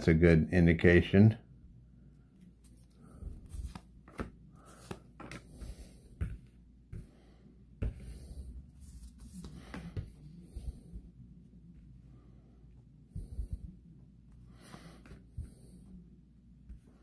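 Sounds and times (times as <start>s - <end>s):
cards rustling: 2.4s - 6.4s.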